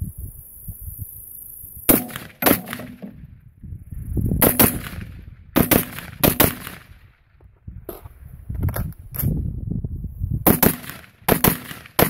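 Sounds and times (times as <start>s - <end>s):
rifle shots with echo: 1.9s - 3.2s, 4.4s - 7.0s, 10.4s - 12.0s.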